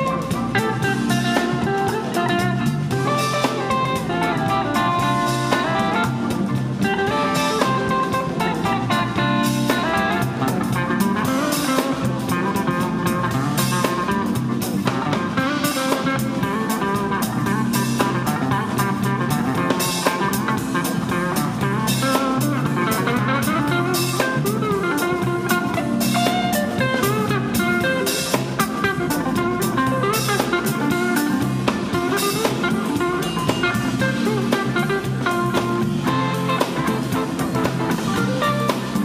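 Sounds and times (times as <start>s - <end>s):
soul-jazz band playing: 0.0s - 39.0s.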